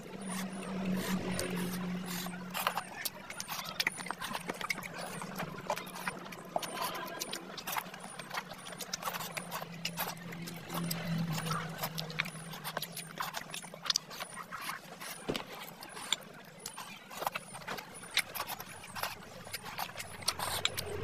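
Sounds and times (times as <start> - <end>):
fingers squelching food: 0.0 - 21.0
wet chewing and lip smacks: 0.0 - 21.0.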